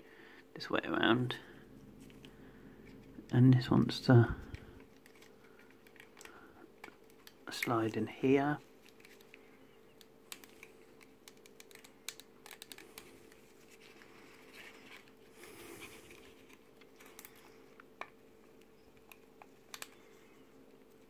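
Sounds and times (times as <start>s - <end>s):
rustle of handling: 1.7s - 21.0s
plastic model parts clicking: 8.8s - 13.1s, 19.0s - 20.0s.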